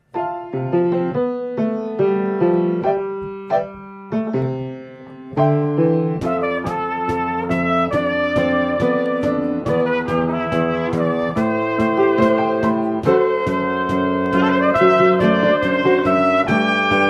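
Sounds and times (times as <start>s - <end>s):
solo piano chords: 0.0s - 17.0s
drum kit stick hits: 6.2s - 17.0s.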